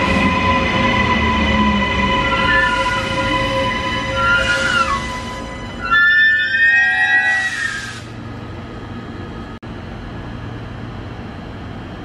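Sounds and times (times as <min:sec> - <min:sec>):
electric train motors whining: 0:00.0 - 0:09.0
train rumble and hum: 0:00.0 - 0:12.0.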